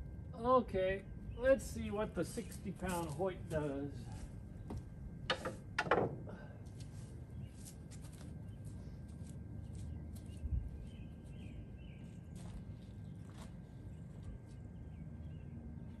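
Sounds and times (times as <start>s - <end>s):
bow knocking on wooden rack: 4.7s - 6.2s.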